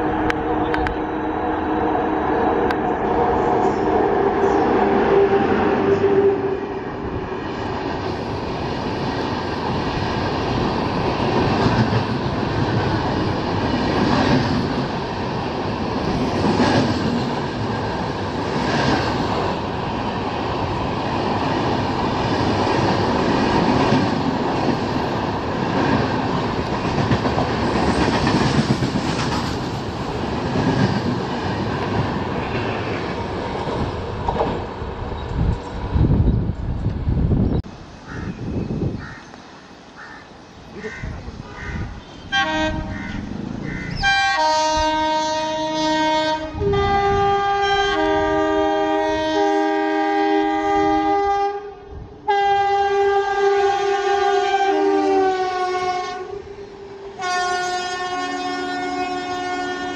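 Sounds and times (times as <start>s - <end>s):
train wheels rumbling on rails: 0.0s - 39.6s.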